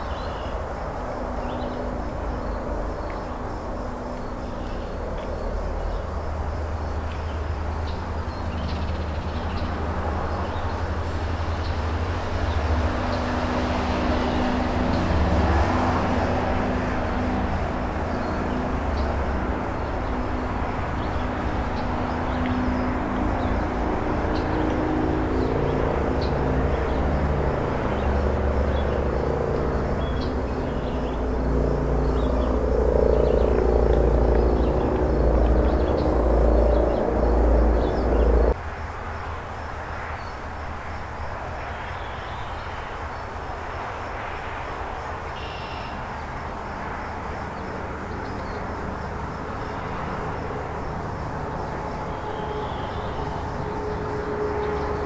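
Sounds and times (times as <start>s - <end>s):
faint hum: 14.1s - 38.6s
low rumble: 25.3s - 38.6s.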